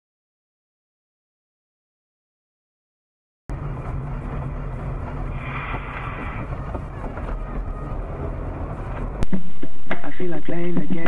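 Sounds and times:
car engine and tyre rumble: 0:03.5 - 0:09.3
hiss: 0:05.3 - 0:06.5.

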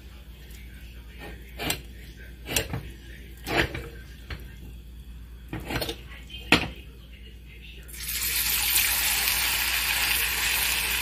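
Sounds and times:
spoon scraping ceramic bowl: 0:01.2 - 0:02.8, 0:05.5 - 0:06.0.

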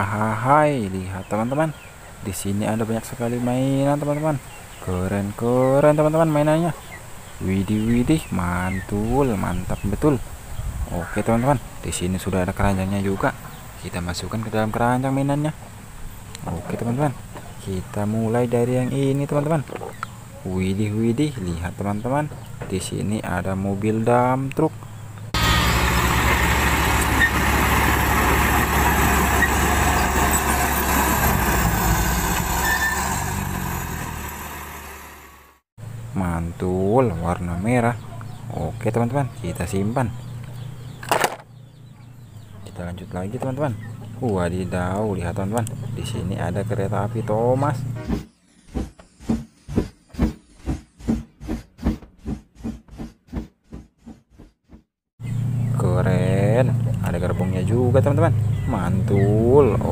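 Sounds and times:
heavy diesel engine droning: 0:25.3 - 0:35.6
steam locomotive chuffing: 0:25.4 - 0:35.0.

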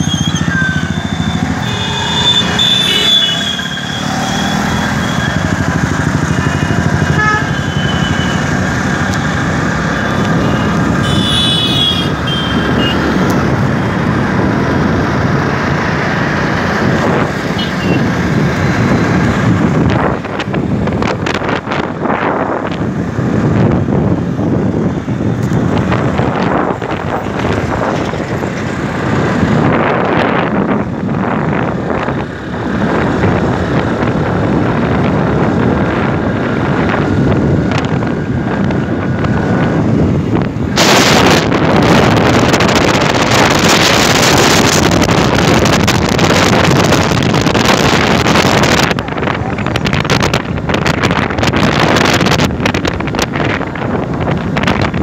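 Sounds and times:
motorcycle engine and road noise: 0:00.0 - 0:55.0
horn toots: 0:01.6 - 0:05.3, 0:07.1 - 0:08.4, 0:10.4 - 0:13.1
wind buffeting microphone: 0:12.5 - 0:55.0.

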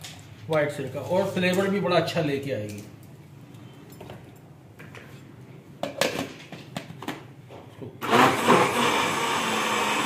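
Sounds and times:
blender motor whirring: 0:08.0 - 0:10.0.

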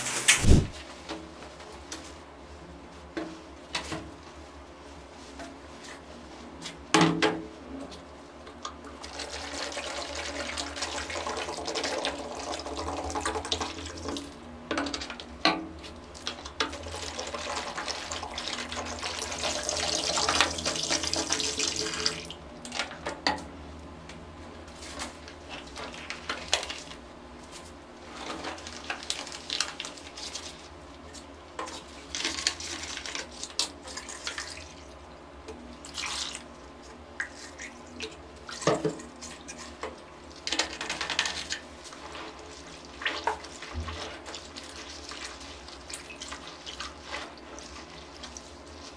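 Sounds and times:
water pouring into plastic basin: 0:09.0 - 0:14.3, 0:16.9 - 0:22.3.

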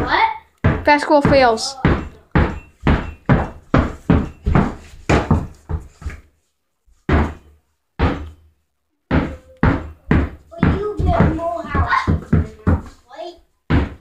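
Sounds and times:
basketball bouncing on carpet: 0:00.6 - 0:06.2, 0:07.1 - 0:08.4, 0:09.1 - 0:13.0, 0:13.7 - 0:14.0.

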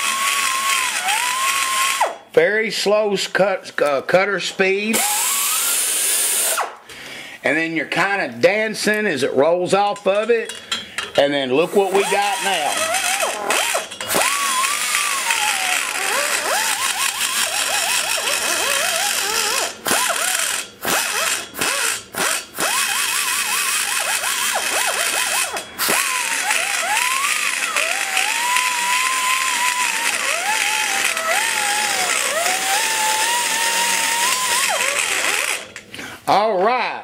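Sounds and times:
die grinder grinding metal: 0:00.0 - 0:02.2, 0:11.5 - 0:35.9.

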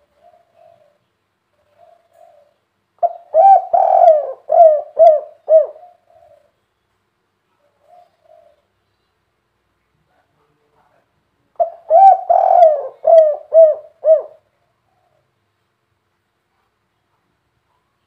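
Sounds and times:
dove cooing: 0:00.0 - 0:06.6, 0:07.6 - 0:08.8, 0:11.6 - 0:15.4.

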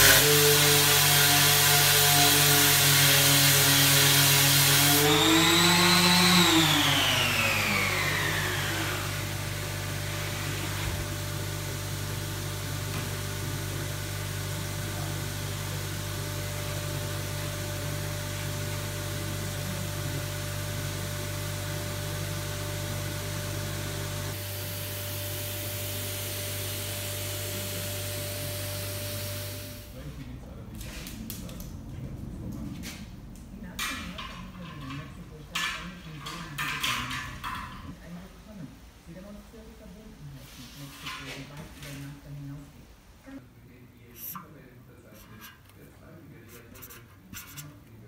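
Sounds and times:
orbital sander whining: 0:00.0 - 0:29.9
dust extractor humming: 0:00.0 - 0:32.6.

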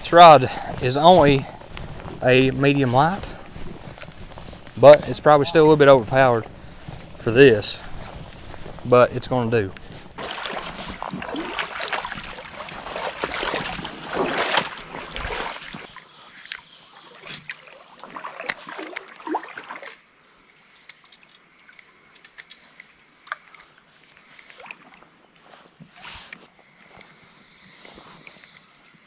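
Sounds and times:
person wading through creek water: 0:00.0 - 0:22.1, 0:22.9 - 0:26.8
water trickling: 0:10.2 - 0:16.0.

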